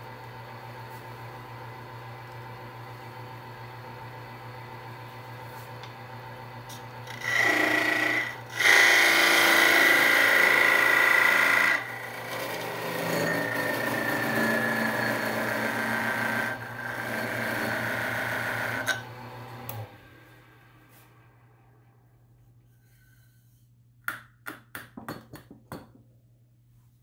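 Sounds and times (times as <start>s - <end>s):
lathe motor hum: 0.2s - 21.3s
turning tool scraping wood: 7.0s - 19.0s.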